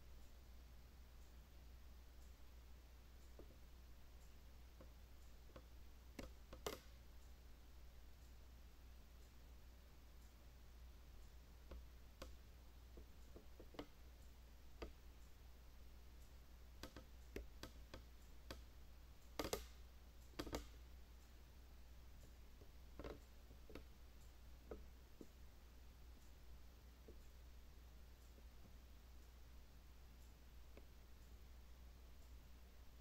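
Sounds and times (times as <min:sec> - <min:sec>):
faint clicks and knocks: 0:03.2 - 0:07.4, 0:11.1 - 0:15.4, 0:16.1 - 0:21.4, 0:22.1 - 0:25.5, 0:26.1 - 0:32.5.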